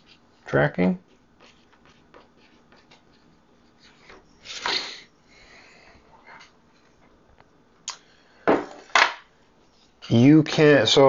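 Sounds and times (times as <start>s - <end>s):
whiteboard rustling: 0.0s - 4.7s, 8.8s - 10.7s
marker scratching on whiteboard: 1.0s - 4.2s.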